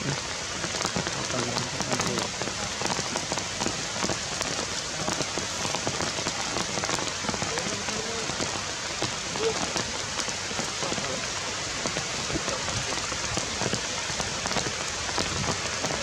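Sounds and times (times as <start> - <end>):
rain falling on foliage: 0.0 - 16.0.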